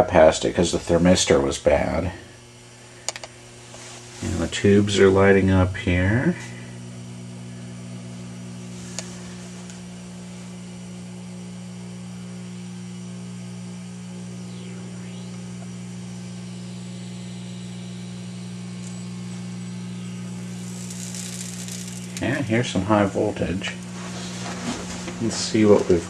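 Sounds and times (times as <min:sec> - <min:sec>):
television mains hum: 0:00.0 - 0:26.0.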